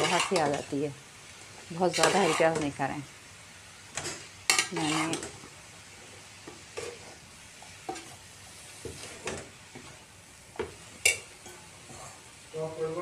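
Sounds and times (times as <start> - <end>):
metal spoon scraping wok: 0.0 - 0.7, 1.8 - 2.8, 4.0 - 5.4
vegetables sizzling: 0.0 - 13.0.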